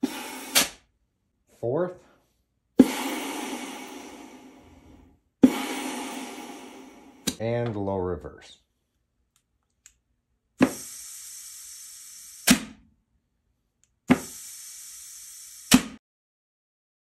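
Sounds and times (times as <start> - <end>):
compressed air blast: 0.0 - 0.8, 2.8 - 7.4, 10.6 - 12.8, 14.1 - 16.0.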